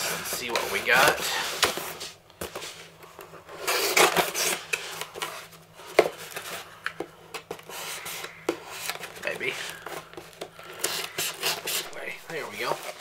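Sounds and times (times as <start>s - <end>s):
knife slicing packing tape: 3.6s - 4.7s, 10.8s - 11.9s.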